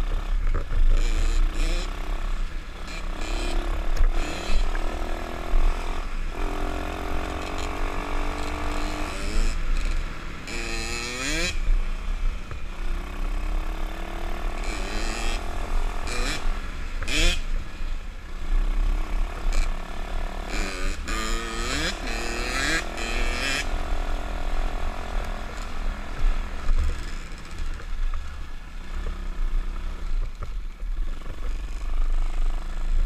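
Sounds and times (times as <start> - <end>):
motorbike engine revving: 0.0 - 11.7, 12.8 - 17.5, 18.7 - 28.1.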